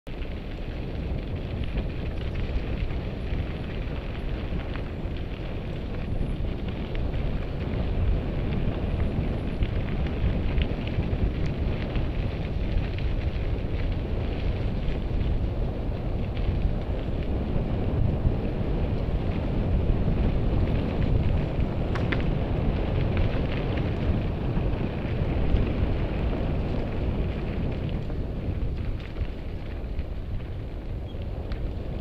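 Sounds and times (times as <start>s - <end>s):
bike tyres rolling on gravel: 0.1s - 32.0s
wind rushing over microphone: 0.1s - 32.0s.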